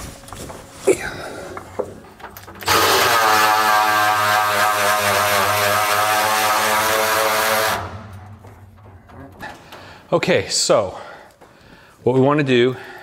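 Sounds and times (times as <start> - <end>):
cordless drill running: 2.6 - 5.5.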